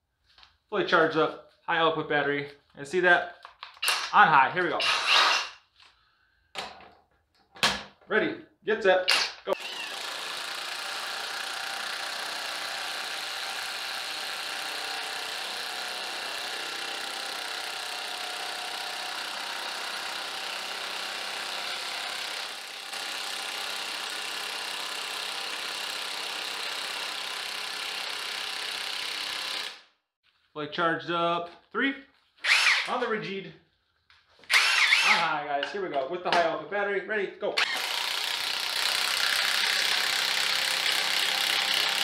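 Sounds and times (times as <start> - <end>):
impact wrench hammering into wood: 9.1 - 29.8, 37.6 - 42.0.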